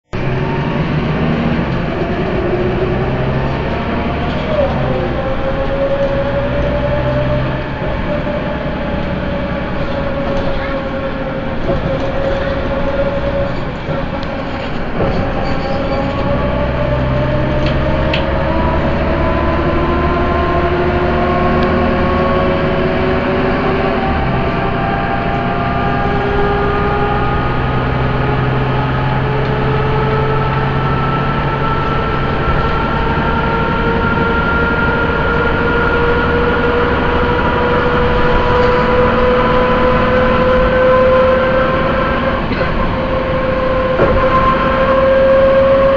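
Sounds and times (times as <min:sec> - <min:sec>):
bus engine drone: 0:00.0 - 0:45.9
drivetrain whine: 0:00.0 - 0:45.9.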